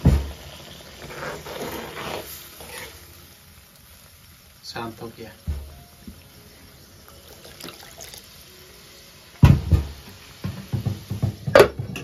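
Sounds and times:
gravy bubbling in a pot: 0:00.0 - 0:03.0, 0:07.0 - 0:08.5
loud thump: 0:09.4 - 0:11.8
clattering knocks on a pot: 0:09.4 - 0:12.0.

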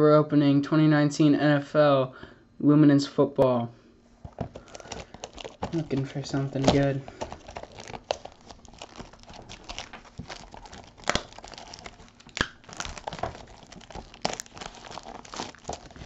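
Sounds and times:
plastic wrap crinkling and tearing: 0:04.2 - 0:16.0.

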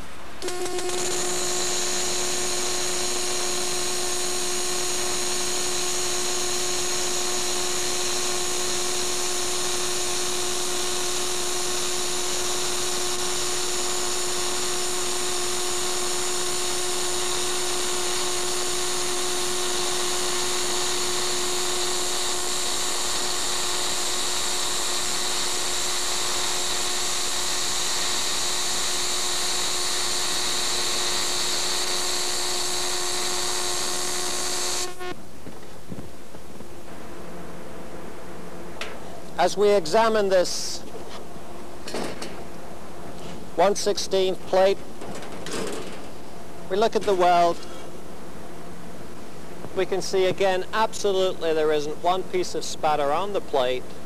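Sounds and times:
welding arc hissing: 0:00.0 - 0:35.2.

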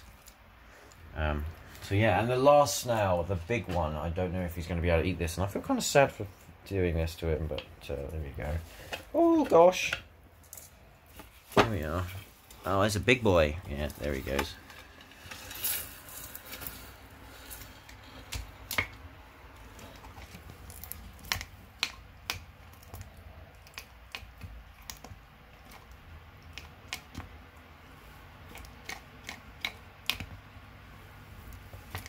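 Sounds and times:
snail shell cracking: 0:14.7 - 0:27.7.

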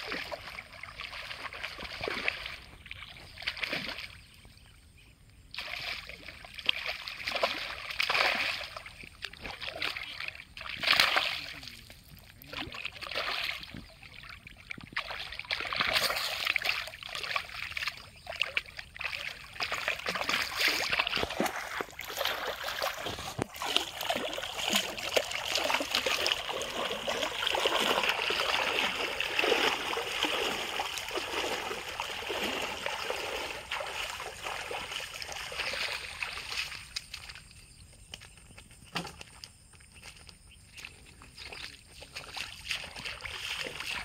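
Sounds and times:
person wading through water: 0:00.0 - 0:04.8, 0:05.5 - 0:44.0
fish thrashing at water surface: 0:05.6 - 0:11.6, 0:12.5 - 0:36.8.

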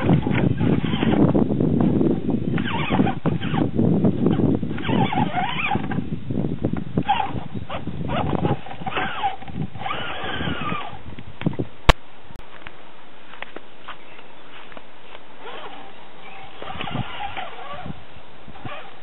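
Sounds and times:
electric motor whining: 0:00.0 - 0:06.1, 0:07.0 - 0:11.1, 0:15.4 - 0:19.0.

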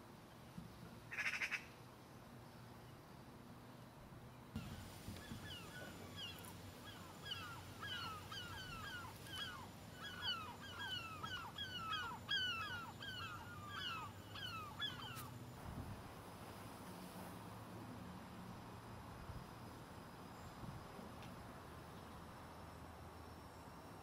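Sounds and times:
flock of birds calling: 0:04.6 - 0:15.3.

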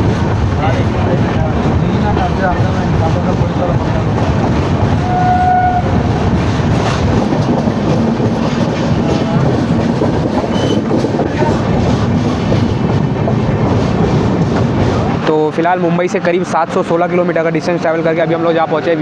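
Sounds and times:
train coach rumbling at speed: 0:00.0 - 0:19.0.

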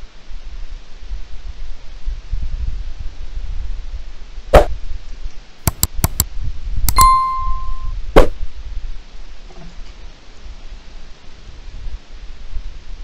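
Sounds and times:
quick mouse clicks: 0:05.7 - 0:06.3
bell ding: 0:06.9 - 0:07.9.

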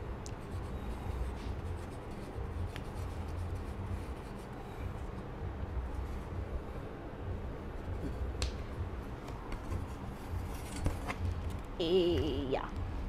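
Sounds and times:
low steady hum: 0:00.0 - 0:13.0
pens scratching on paper: 0:00.3 - 0:05.2.

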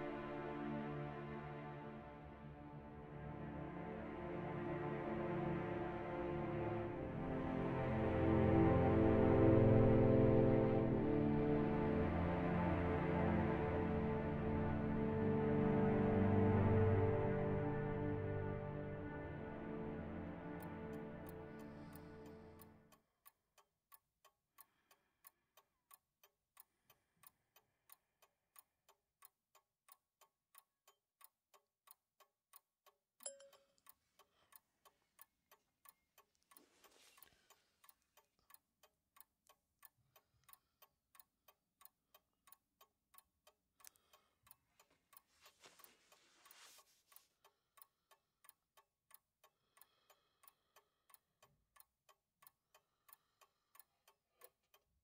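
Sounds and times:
clock ticking: 0:19.0 - 0:55.0
soft rustling: 0:36.5 - 0:37.6, 0:44.8 - 0:47.3.

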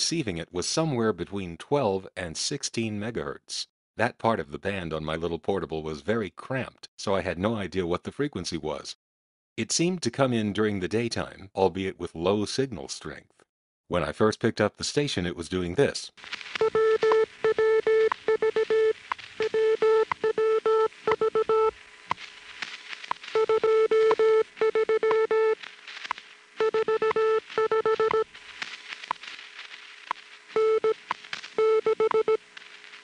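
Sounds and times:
radio time signal tone: 0:16.6 - 0:21.8, 0:23.3 - 0:25.7, 0:26.6 - 0:28.4, 0:30.5 - 0:32.4.

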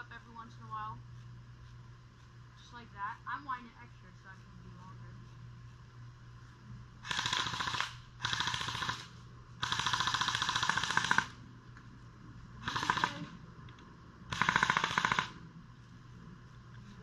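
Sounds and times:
airsoft gun firing bursts: 0:07.0 - 0:11.4, 0:12.6 - 0:13.3, 0:14.3 - 0:15.4.

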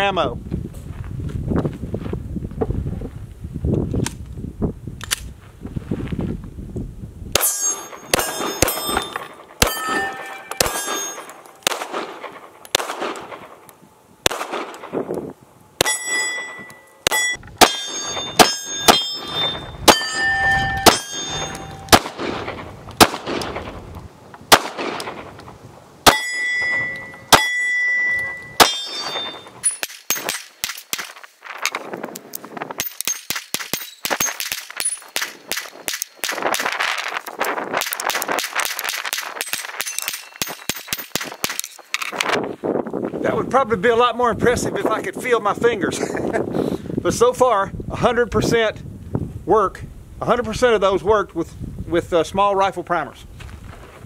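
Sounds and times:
steel targets pinging: 0:07.4 - 0:12.5, 0:15.8 - 0:22.6, 0:26.0 - 0:31.2, 0:32.8 - 0:36.5, 0:38.7 - 0:41.9
pistol shots: 0:07.4 - 0:13.6, 0:14.2 - 0:15.1, 0:15.8 - 0:23.8, 0:24.5 - 0:25.3, 0:26.0 - 0:31.2, 0:32.9 - 0:36.8, 0:37.7 - 0:41.8.

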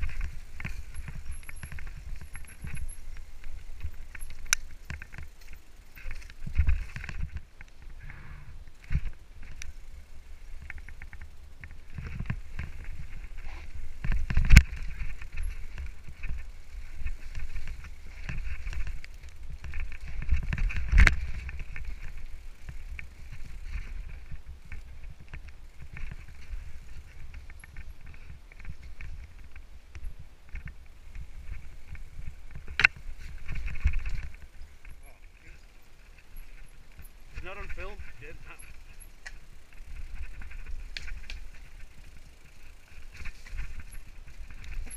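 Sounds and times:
bike chain and frame clattering: 0:00.0 - 0:44.9
bike tyres rumbling over trail: 0:00.0 - 0:44.9.

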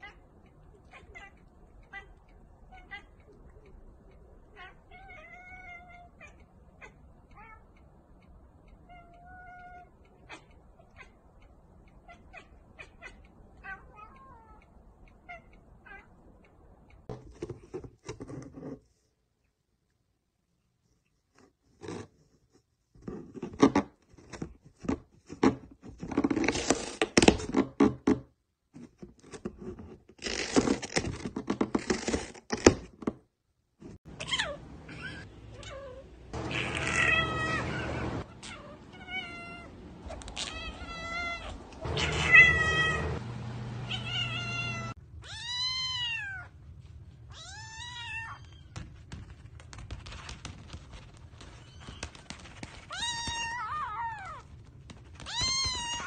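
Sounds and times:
cat meowing: 0:00.0 - 0:03.5, 0:04.4 - 0:07.7, 0:08.8 - 0:11.2, 0:12.0 - 0:14.6, 0:34.2 - 0:43.2, 0:43.8 - 0:46.5, 0:47.3 - 0:48.8, 0:51.5 - 0:54.5, 0:55.2 - 0:56.0
cat scratching in cardboard box: 0:17.2 - 0:19.0, 0:21.3 - 0:28.1, 0:28.7 - 0:32.9, 0:48.7 - 0:56.0
kitten mewing: 0:34.2 - 0:43.2.

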